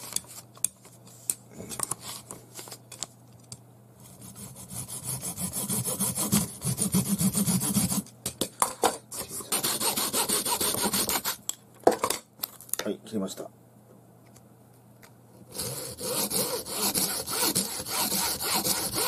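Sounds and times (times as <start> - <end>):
hacksaw sawing strokes: 4.2 - 8.0, 9.4 - 11.4, 15.5 - 19.0.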